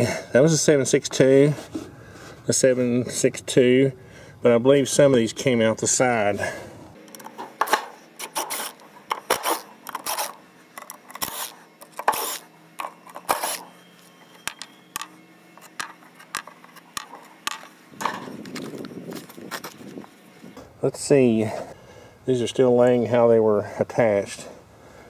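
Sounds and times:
screws clicking and scraping: 8.2 - 13.7
cordless driver whirring: 8.2 - 20.0.

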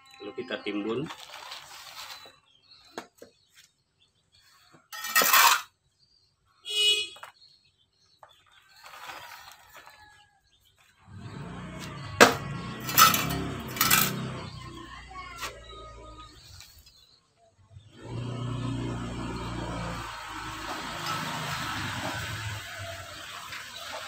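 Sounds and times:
trowel scraping potting mix: 1.0 - 2.4, 5.0 - 5.7, 8.8 - 10.0, 11.5 - 14.8, 18.9 - 24.0.

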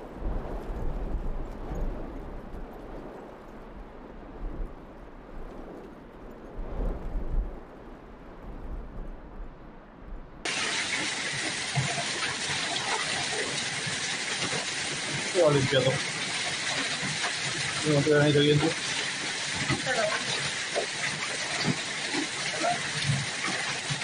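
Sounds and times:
wind buffeting microphone: 0.0 - 10.5
heavy hail and rain falling: 10.4 - 24.0.

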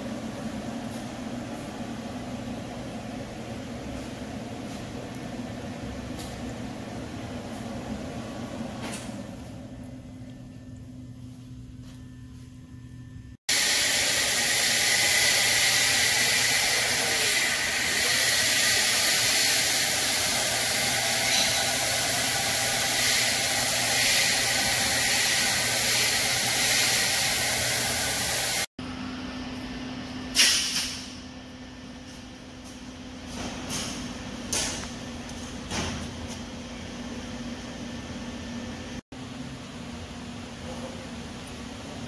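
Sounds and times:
low shop hum: 0.0 - 42.0.

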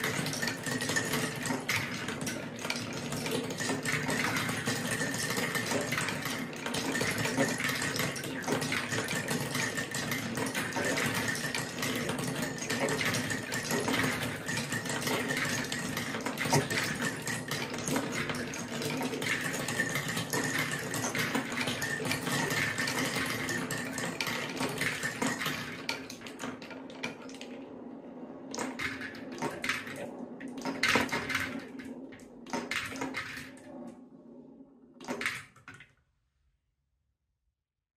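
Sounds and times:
marbles clicking together: 0.0 - 27.7
marbles rolling on wooden tracks: 0.0 - 35.9.

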